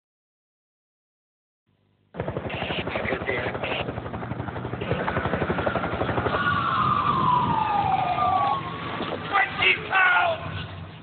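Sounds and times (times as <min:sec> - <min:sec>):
helicopter rotor chop: 0:02.1 - 0:11.0
siren wailing: 0:05.6 - 0:10.6.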